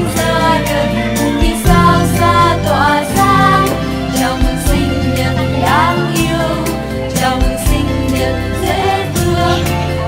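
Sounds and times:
music with steady beat: 0.0 - 10.0
sustained bass notes: 0.0 - 10.0.

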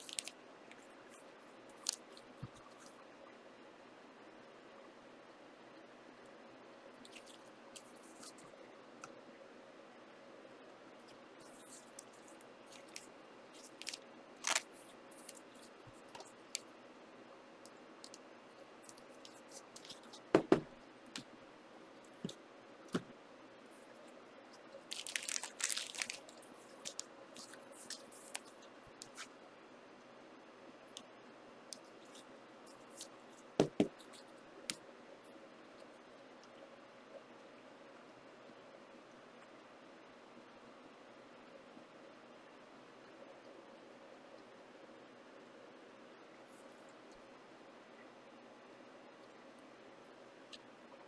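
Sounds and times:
wrappers crinkling and tearing: 0.0 - 0.3, 13.6 - 15.5, 24.9 - 28.5
faint steady hum: 0.0 - 51.0
dull thumps on table: 20.3 - 20.7, 33.6 - 34.0.

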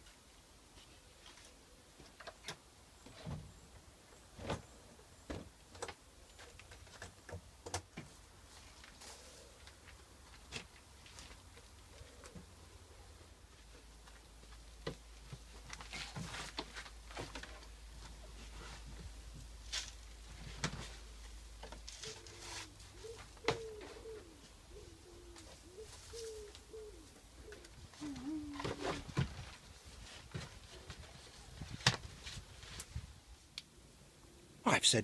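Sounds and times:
pigeon cooing: 11.8 - 13.2, 22.0 - 29.3
bedding rustling and tapping: 13.6 - 22.4, 27.6 - 33.1.

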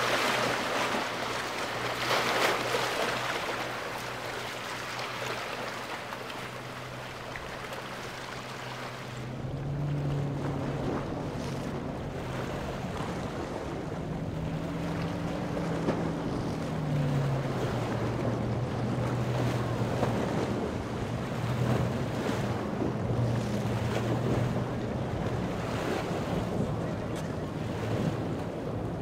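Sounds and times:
boat engine droning: 0.0 - 29.0
waves rushing: 0.0 - 29.0
wind buffeting microphone: 9.2 - 29.0.

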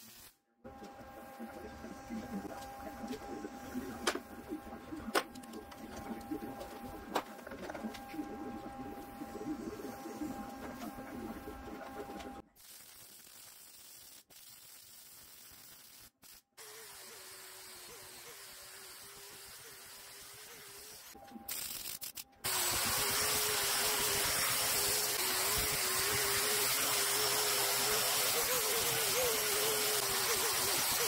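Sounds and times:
welder hissing crackle: 12.0 - 31.0
angle grinder grinding steel: 22.4 - 31.0.

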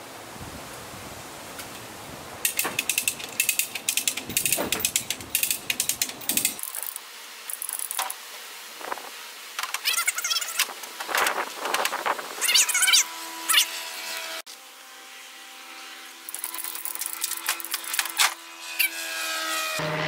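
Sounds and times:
ratchet pawl clicking: 2.4 - 8.2.

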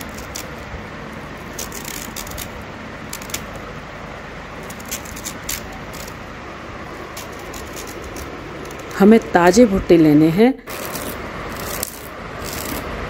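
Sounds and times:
knife scraping corn kernels: 0.0 - 0.6, 1.4 - 3.6, 4.6 - 6.2, 7.1 - 9.3, 10.7 - 12.9
steady background noise: 0.0 - 13.0.

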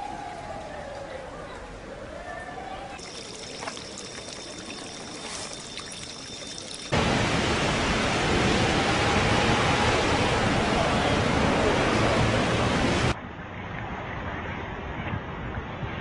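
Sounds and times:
water trickling: 3.0 - 7.0
loud steady rushing noise: 7.0 - 13.2.

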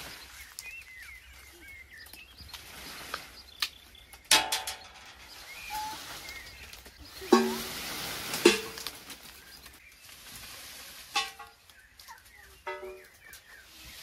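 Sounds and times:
small birds chirping: 0.0 - 14.0
ringing metal clank: 12.7 - 13.1.

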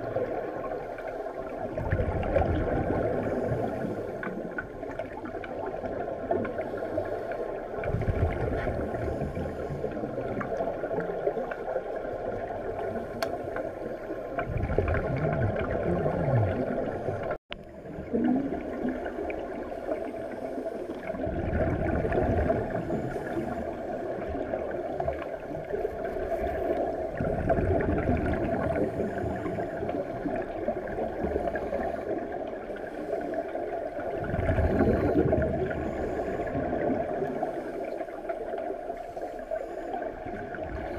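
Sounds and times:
muffled underwater bubbling: 0.0 - 40.9
underwater hiss: 18.6 - 27.1, 27.8 - 40.9.

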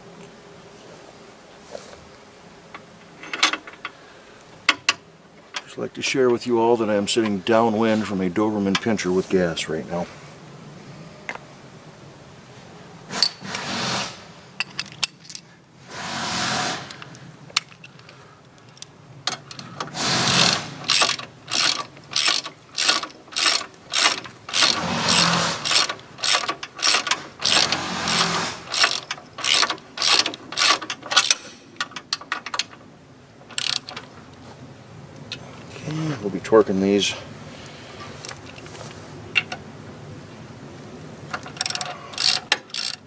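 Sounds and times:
ratchet wrench clicking: 18.7 - 32.8, 33.5 - 34.0, 41.4 - 43.0.

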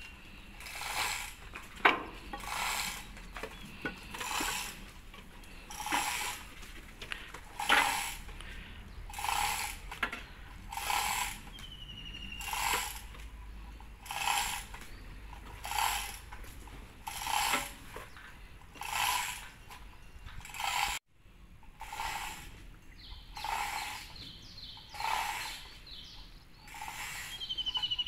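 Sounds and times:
chain hoist ratchet clicking: 0.6 - 1.5, 2.3 - 3.2, 4.1 - 4.8, 5.7 - 6.5, 7.5 - 8.4, 9.1 - 10.0, 10.7 - 11.6, 12.4 - 16.4, 17.0 - 17.8, 18.7 - 19.8, 20.4 - 21.0, 21.7 - 22.5, 23.4 - 24.2, 25.0 - 25.7.

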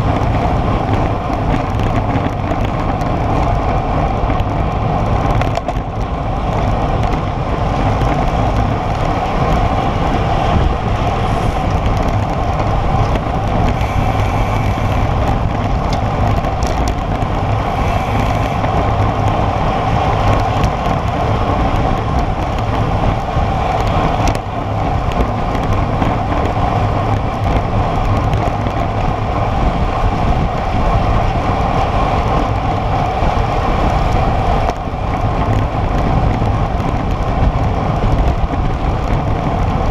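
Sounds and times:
wind rushing over microphone: 0.0 - 39.9
bike tyres hissing on asphalt: 5.9 - 39.7.

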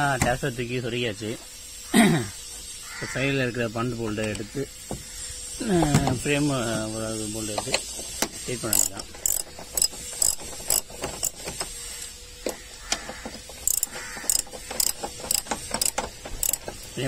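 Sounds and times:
ratchet wrench clicking: 4.1 - 5.6, 6.3 - 17.0.

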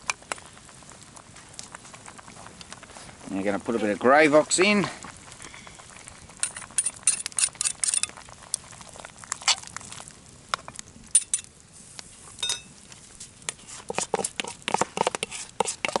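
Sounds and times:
metal ladle clinking on pot: 12.4 - 12.7.

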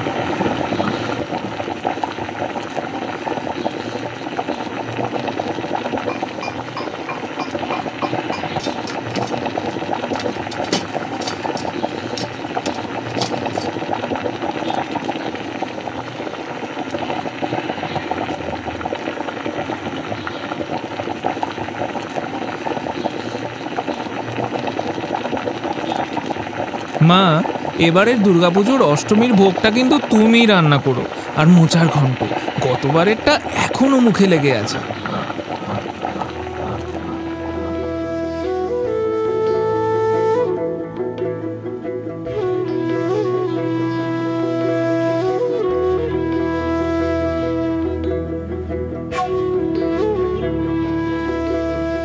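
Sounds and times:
pot of liquid boiling: 0.0 - 40.6.

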